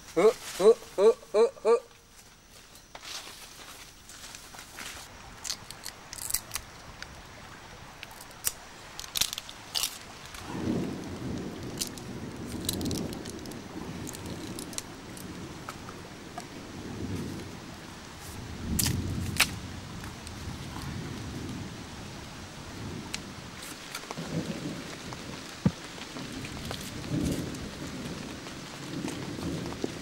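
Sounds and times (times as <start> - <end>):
bamboo and twigs snapping: 4.3 - 7.1, 8.0 - 10.4, 11.3 - 15.3, 18.7 - 20.2, 23.1 - 24.2.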